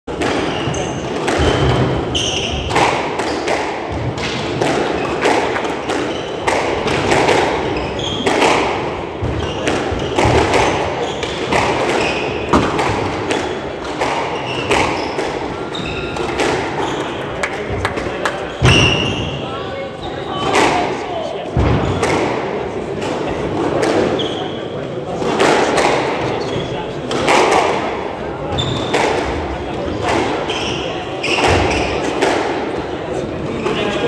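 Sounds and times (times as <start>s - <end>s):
squash ball knocks: 0.1s - 2.0s, 2.6s - 15.5s
sneaker squeaks on wooden floor: 0.4s - 3.4s, 5.8s - 6.5s, 7.6s - 8.6s, 9.2s - 12.6s, 14.2s - 17.2s, 18.6s - 20.4s, 24.0s - 24.8s, 26.3s - 26.9s, 28.5s - 29.1s, 30.2s - 32.1s.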